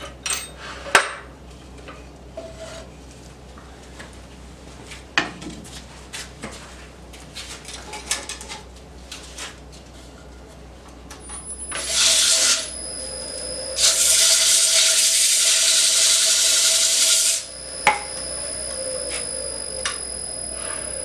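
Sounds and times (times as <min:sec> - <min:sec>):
wood lathe humming: 0:11.3 - 0:21.0
tool rasping on spinning wood: 0:11.7 - 0:12.7.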